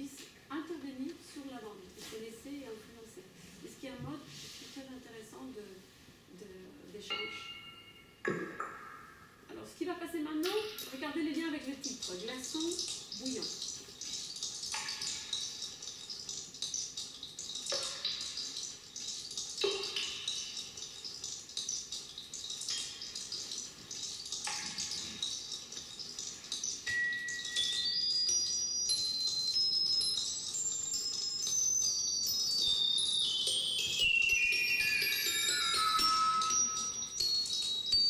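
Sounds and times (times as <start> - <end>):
high chime-like tones: 7.1 - 9.3, 26.8 - 38.0
sharp ringing strikes: 7.1 - 9.3
fizzing crackling electronic texture: 10.4 - 38.0.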